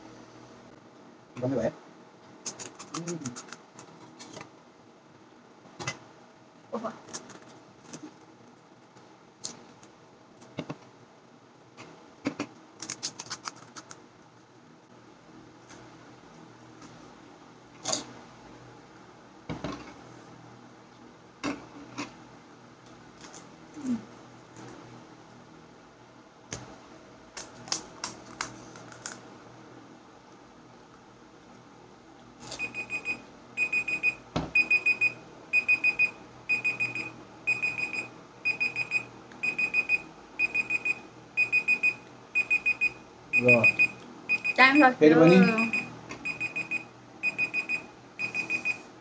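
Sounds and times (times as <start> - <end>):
electronic timer alarm beeping: 32.5 - 48.9.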